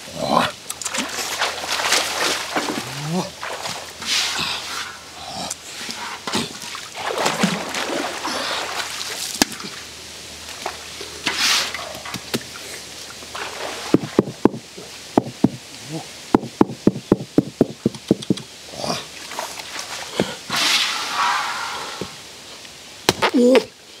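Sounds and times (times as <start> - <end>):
shallow water splashing: 0.6 - 5.2, 5.8 - 15.1, 19.1 - 22.2
hatchet striking a wet log: 16.4 - 16.8.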